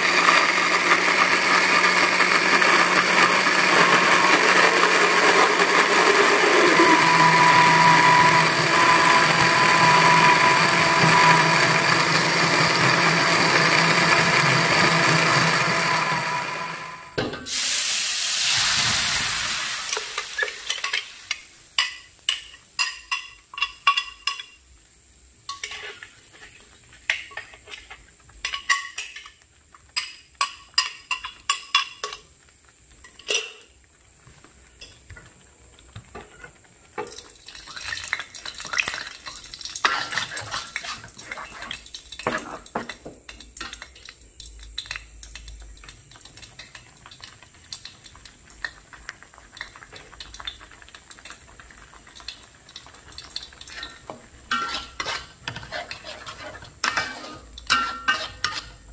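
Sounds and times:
electric blender grinding: 0.0s - 17.2s
paste sizzling in hot oil: 0.0s - 58.9s
spatula scraping metal wok: 6.0s - 13.0s, 25.5s - 28.6s, 53.6s - 58.9s.

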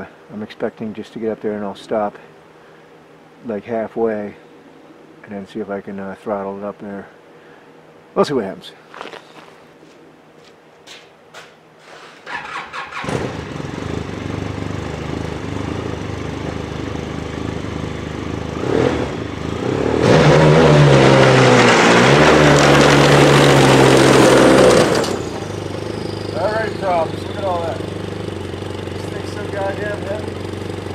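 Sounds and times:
snowmobile engine revving: 18.3s - 30.9s.

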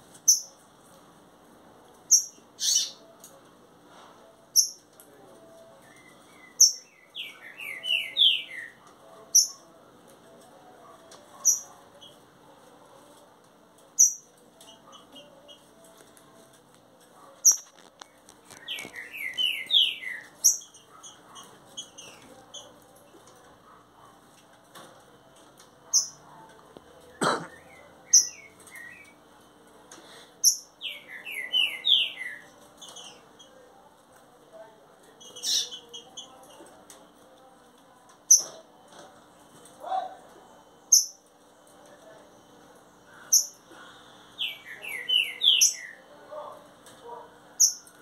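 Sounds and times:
bird singing whistled notes: 5.9s - 8.8s, 18.5s - 20.7s, 30.5s - 33.0s, 44.4s - 46.0s.

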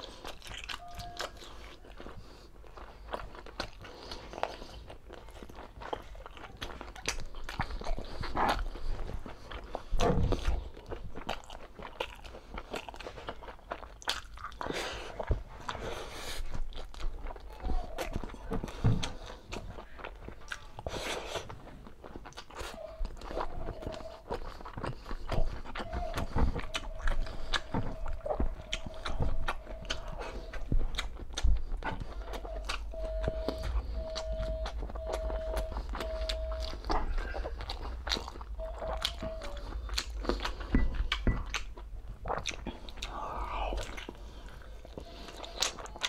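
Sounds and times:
person chewing food: 0.0s - 46.0s
short beeps: 0.8s - 1.4s, 32.9s - 37.2s, 38.5s - 39.7s, 40.7s - 41.5s
wet mouth clicks: 35.8s - 46.0s.

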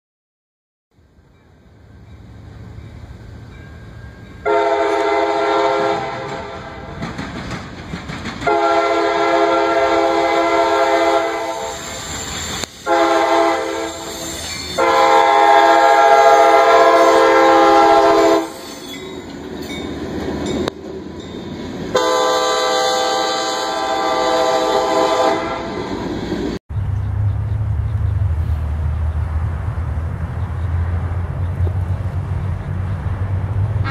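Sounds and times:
freight train rumble and wheel clatter: 1.0s - 33.9s
locomotive air horn blasts: 4.4s - 7.0s, 8.4s - 12.0s, 12.8s - 18.6s, 21.9s - 25.8s.

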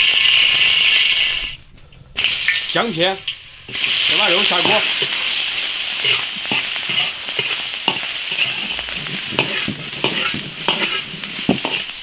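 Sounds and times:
food sizzling in a wok: 0.0s - 1.6s, 2.2s - 12.0s
steel ladle scraping a wok: 3.6s - 12.0s.

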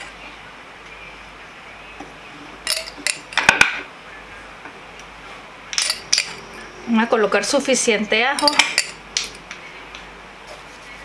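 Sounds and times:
fork clinking against glass jar: 2.7s - 3.4s, 5.8s - 6.4s, 8.3s - 9.3s.

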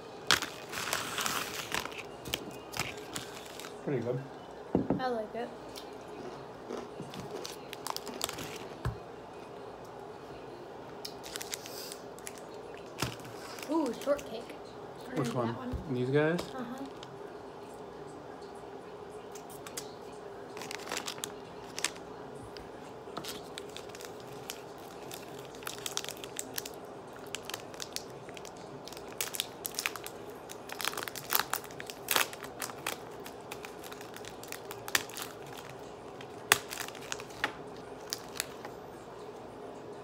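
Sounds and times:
plastic wrappers crackling: 0.2s - 4.0s, 7.1s - 8.8s, 11.1s - 14.4s, 20.6s - 22.0s, 23.2s - 38.7s.

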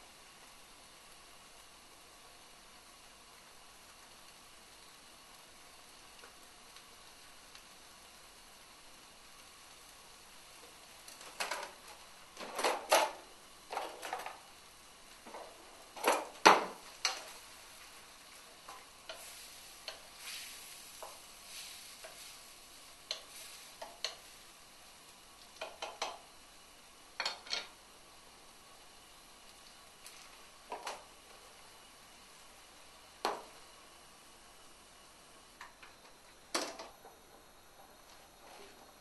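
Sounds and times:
food sizzling lightly: 0.0s - 39.0s
spatula scraping frying pan: 15.3s - 24.4s.

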